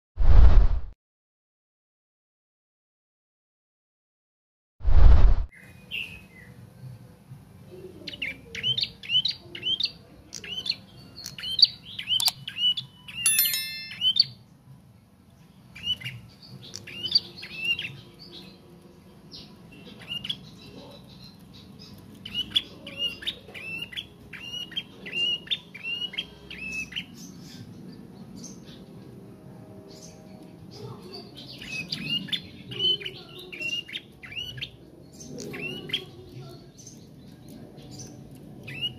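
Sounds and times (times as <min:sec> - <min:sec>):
songbird chirping: 0:08.0 - 0:14.4.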